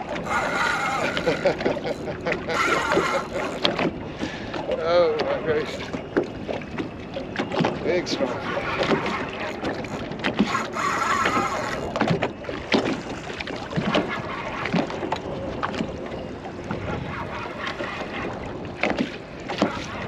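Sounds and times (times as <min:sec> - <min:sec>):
water slapping boat hull: 0:00.0 - 0:20.0
wind on microphone: 0:07.4 - 0:20.0.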